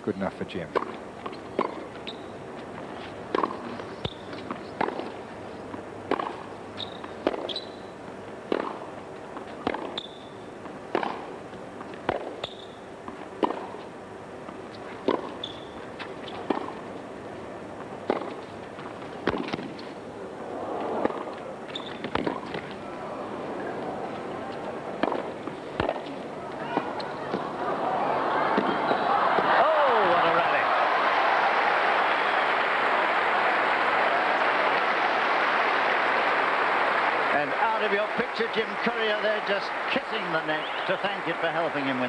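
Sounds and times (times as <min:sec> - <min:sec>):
racket hitting tennis ball: 0:00.7 - 0:02.1, 0:03.3 - 0:07.8, 0:08.4 - 0:10.3, 0:10.9 - 0:13.9, 0:14.9 - 0:16.9, 0:18.0 - 0:19.9, 0:20.9 - 0:22.8, 0:24.5 - 0:27.5
tennis ball bouncing: 0:00.7 - 0:02.3, 0:03.3 - 0:13.9, 0:14.5 - 0:17.0, 0:18.0 - 0:19.9, 0:21.0 - 0:22.8, 0:24.5 - 0:27.5
shoes squeaking on court: 0:00.8 - 0:05.1, 0:06.8 - 0:07.9, 0:09.4 - 0:10.4, 0:12.4 - 0:12.8, 0:14.6 - 0:16.7, 0:21.7 - 0:22.8
crowd murmur: 0:20.0 - 0:21.7, 0:22.4 - 0:41.9.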